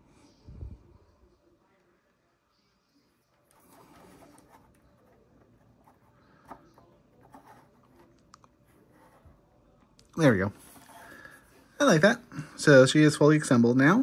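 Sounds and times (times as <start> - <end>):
light scraping and rubbing: 3.3 - 9.6, 10.2 - 12.0.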